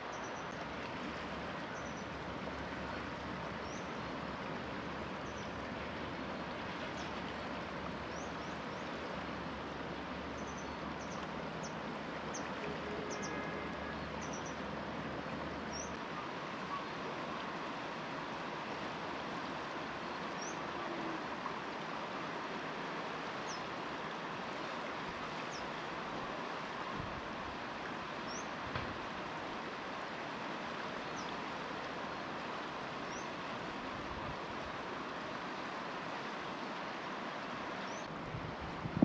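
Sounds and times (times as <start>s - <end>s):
river rushing: 0.0s - 39.0s.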